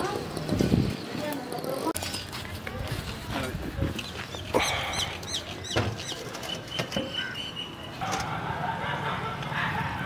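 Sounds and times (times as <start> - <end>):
birds calling: 4.0 - 10.0.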